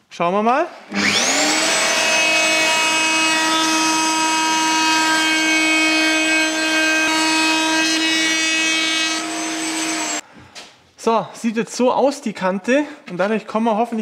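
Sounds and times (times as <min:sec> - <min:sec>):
router bit cutting wood hiss: 0:00.9 - 0:10.2
wood router motor running: 0:00.9 - 0:10.2.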